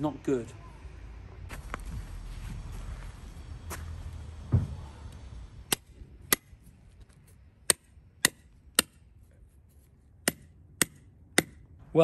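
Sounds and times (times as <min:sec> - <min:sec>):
low thump: 0:04.4 - 0:04.9
hammer striking metal pin: 0:10.2 - 0:11.6.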